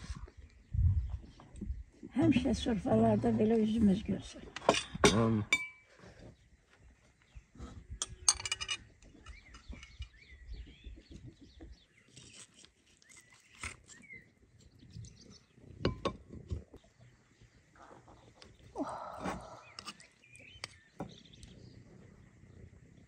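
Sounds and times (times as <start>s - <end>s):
birds chirping: 6.2s - 23.0s
cutlery clinking on plates: 8.0s - 10.1s.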